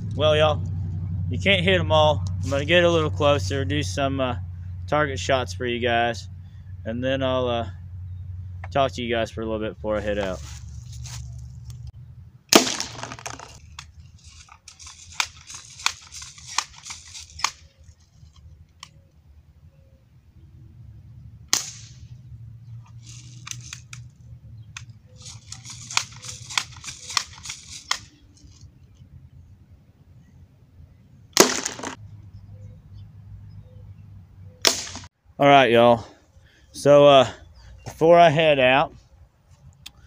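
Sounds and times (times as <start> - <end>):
air rifle shot crack: 12.5 - 13.2, 21.5 - 22.2, 31.4 - 32.0, 34.6 - 35.1
air rifle clacking and hissing: 13.6 - 17.6, 25.2 - 28.6.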